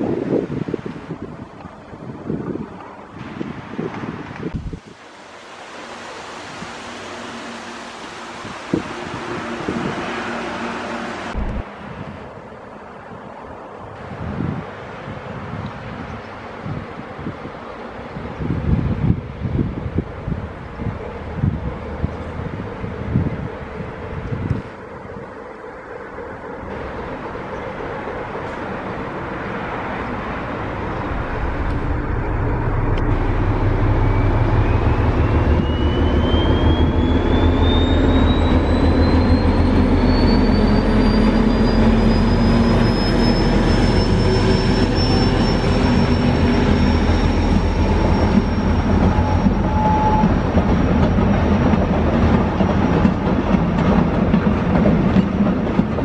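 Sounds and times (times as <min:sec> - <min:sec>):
diesel locomotive engine drone: 0:04.3 - 0:56.0
thin high whine: 0:05.3 - 0:11.7, 0:30.7 - 0:50.4
train wagons rolling: 0:26.5 - 0:56.0.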